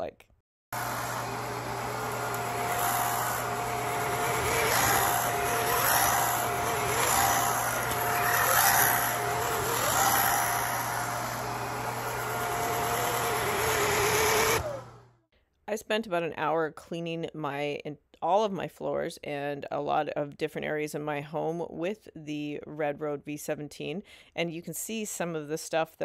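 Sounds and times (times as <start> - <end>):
stick vacuum running over rug: 0.8 - 15.1.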